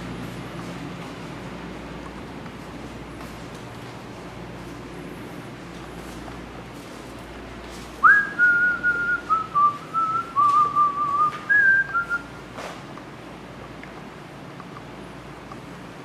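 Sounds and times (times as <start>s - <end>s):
low steady hum: 0.0s - 16.0s
person whistling a tune: 8.0s - 12.3s.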